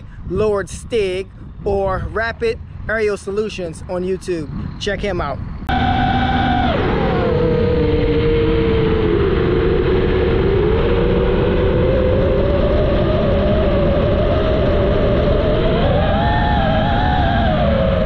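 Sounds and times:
drone motors whining: 0.0s - 18.0s
wind noise: 0.0s - 18.0s.

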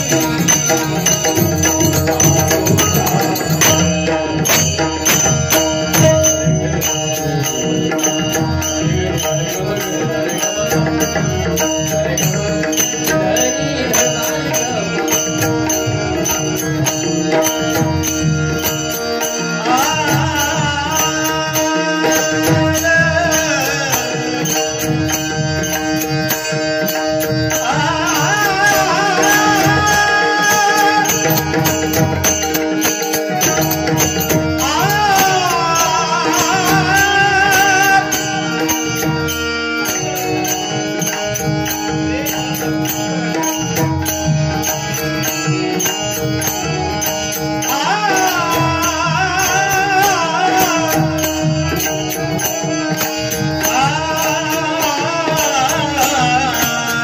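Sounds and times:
hand drum rhythm: 0.0s - 7.1s, 7.7s - 39.3s
held instrumental notes: 0.0s - 57.0s
man singing: 0.0s - 57.0s.

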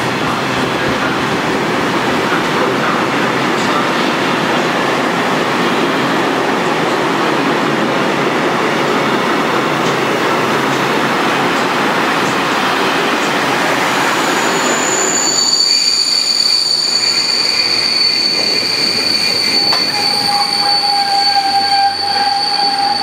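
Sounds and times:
train wheels on rails: 0.0s - 23.0s.

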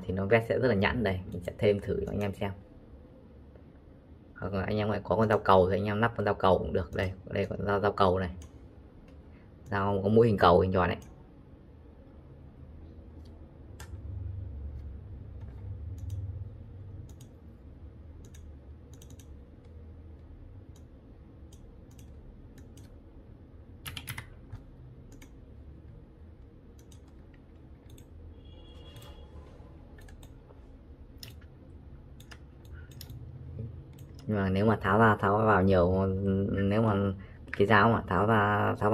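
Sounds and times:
low steady hum: 0.0s - 38.9s
keyboard key presses: 18.2s - 20.9s, 21.5s - 23.0s, 23.8s - 25.4s, 32.2s - 33.2s
mouse clicks: 32.2s - 33.2s.

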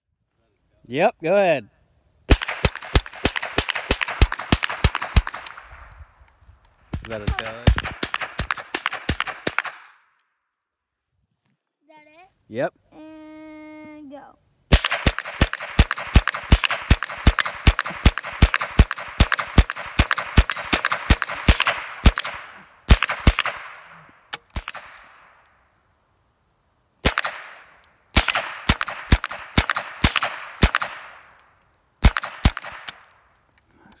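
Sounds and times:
rapid gunshots with echo: 2.3s - 5.6s, 7.0s - 9.8s, 14.7s - 23.9s, 28.2s - 31.2s.

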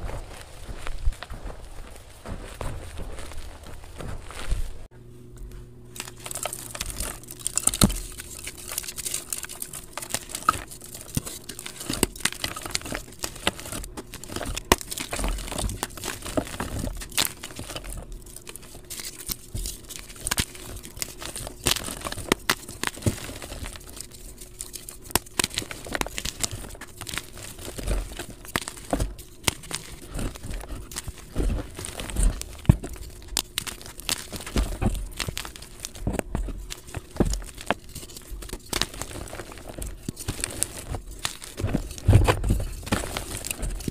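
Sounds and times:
chalk crumbling between fingers: 6.0s - 43.9s.

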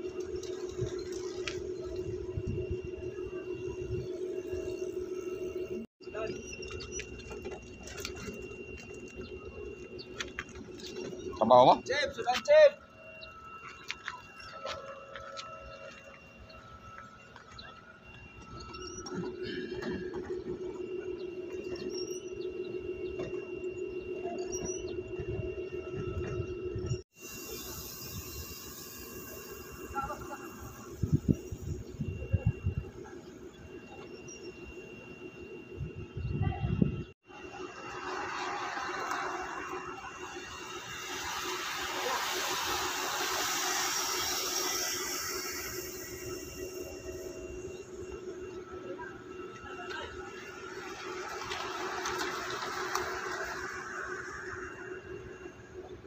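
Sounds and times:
low hum: 0.0s - 56.0s
bicycle tyres hissing on road: 27.2s - 31.3s, 37.7s - 47.3s.

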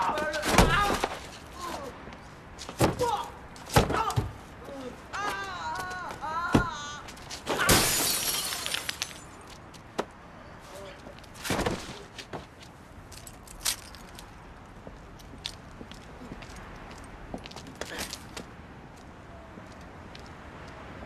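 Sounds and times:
man yelling: 3.0s - 7.1s
car window glass smashing: 7.5s - 9.3s.

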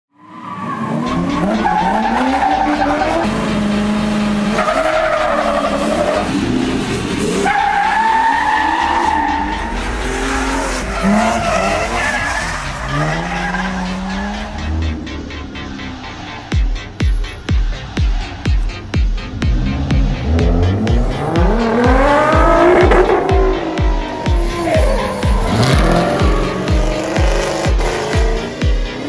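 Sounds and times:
race car engine revving: 0.6s - 29.0s
tyres squealing: 7.4s - 15.1s.

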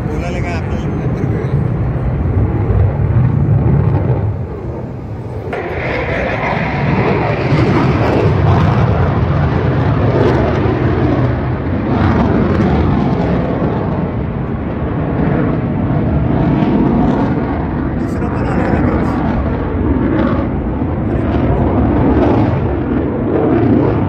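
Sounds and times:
aircraft engine roar: 0.0s - 24.0s.

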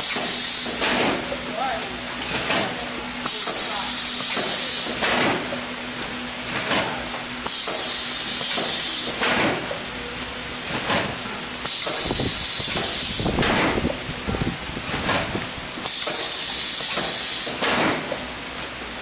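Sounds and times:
compressed air hissing: 3.3s - 5.1s, 7.4s - 9.2s, 11.6s - 14.0s, 15.8s - 17.6s
machine clicks and knocks: 4.3s - 5.6s, 8.5s - 9.8s.

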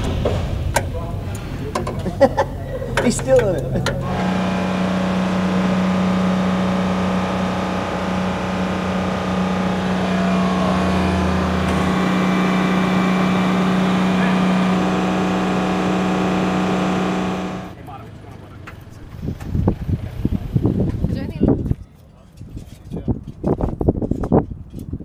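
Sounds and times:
low machine drone: 0.0s - 17.8s
deeper hum: 3.9s - 17.8s.

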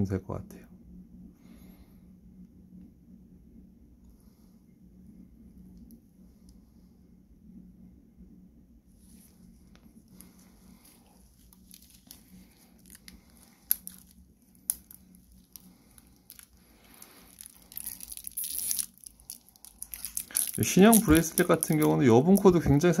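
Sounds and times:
glove and cloth rustling: 9.0s - 23.0s.

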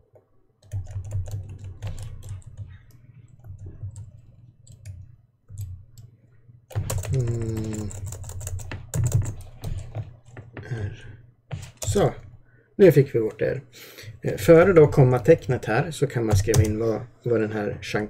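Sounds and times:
person humming: 7.0s - 8.1s.

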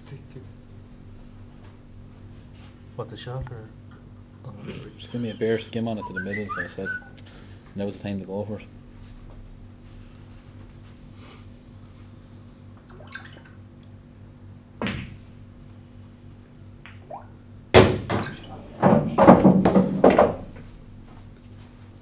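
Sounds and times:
pool cue striking ball: 14.8s - 15.2s, 17.7s - 20.6s
loud thunk: 17.8s - 20.5s.

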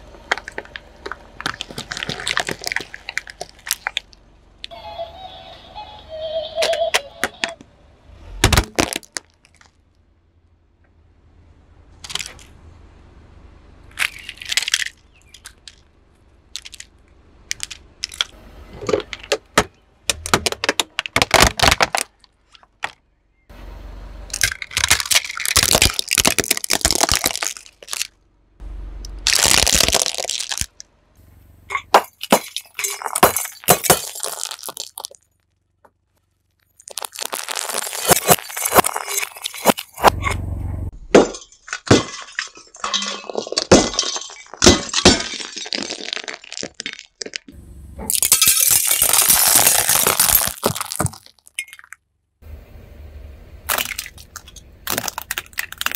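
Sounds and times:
tyre crushing plastic toys: 0.0s - 4.2s, 8.3s - 9.8s, 12.0s - 12.5s, 13.9s - 15.9s, 16.5s - 23.0s, 24.3s - 28.2s, 29.1s - 30.8s, 31.7s - 40.3s, 41.1s - 52.0s, 53.7s - 55.9s
glass shattering: 24.3s - 28.1s, 31.7s - 35.2s, 36.6s - 40.3s, 41.1s - 52.0s, 53.7s - 55.9s.

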